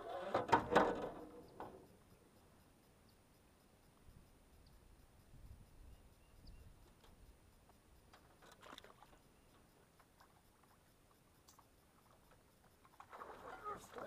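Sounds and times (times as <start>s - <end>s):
faint clicks: 6.7s - 13.1s.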